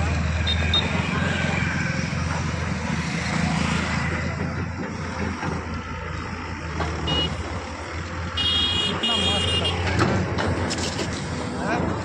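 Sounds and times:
excavator diesel engine running: 0:00.0 - 0:12.0
highway traffic passing: 0:00.0 - 0:12.0
vehicle horn beep: 0:07.1 - 0:07.4, 0:08.4 - 0:09.9.

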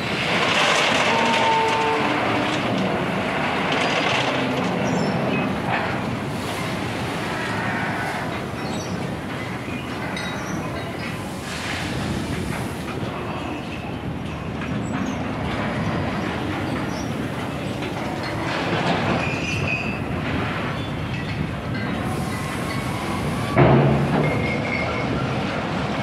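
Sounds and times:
rail wagons and crane rumbling: 0:00.0 - 0:26.0
high metallic squeals: 0:00.5 - 0:02.6.

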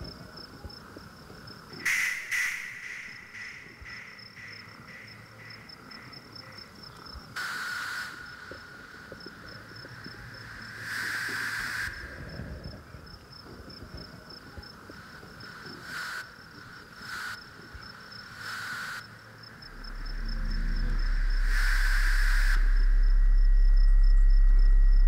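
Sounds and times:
crickets chirping: 0:00.0 - 0:25.0
short bursts of hiss: 0:07.4 - 0:08.4
low hum: 0:19.5 - 0:25.0.

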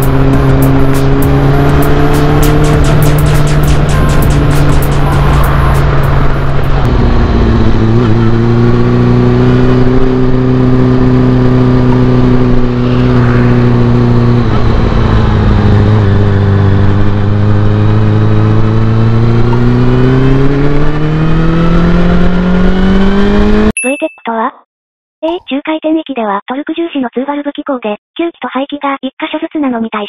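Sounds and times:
motorcycle engine revving: 0:00.0 - 0:23.7.

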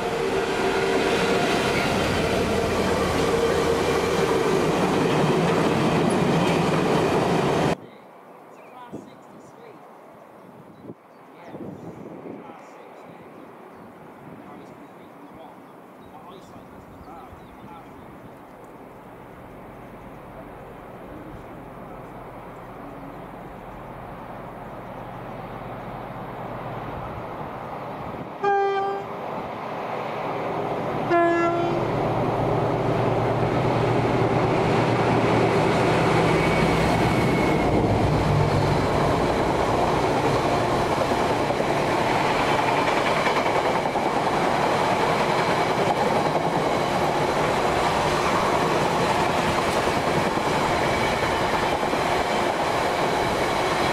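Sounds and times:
locomotive two-tone horn: 0:28.4 - 0:29.1, 0:31.1 - 0:31.9.

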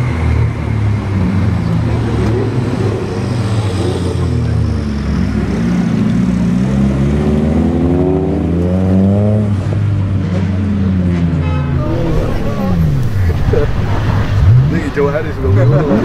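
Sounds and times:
car engine revving: 0:00.0 - 0:16.0
low drone: 0:11.4 - 0:16.0.

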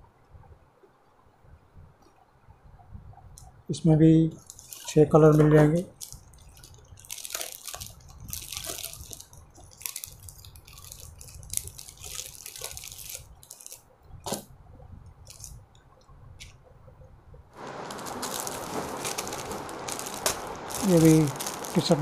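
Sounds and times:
plastic packaging rustling: 0:04.3 - 0:14.4, 0:15.2 - 0:15.6, 0:17.6 - 0:22.0.

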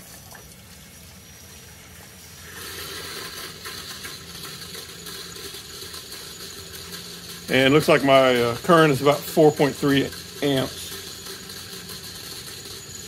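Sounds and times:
electric fuel pump humming: 0:00.0 - 0:13.0
fuel rushing through hoses: 0:00.0 - 0:13.0.

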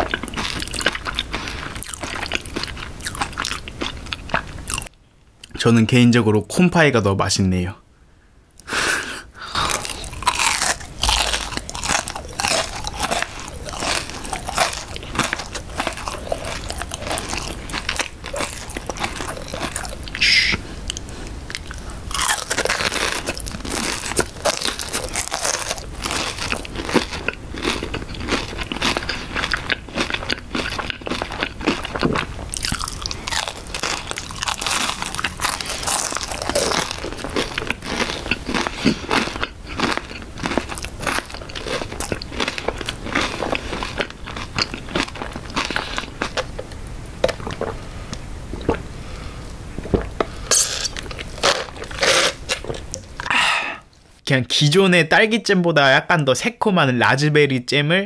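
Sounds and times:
crunching pastry: 0:00.0 - 0:04.9, 0:09.6 - 0:46.7, 0:50.5 - 0:53.0
wet chewing: 0:00.0 - 0:04.9, 0:09.6 - 0:48.9, 0:49.8 - 0:53.3.

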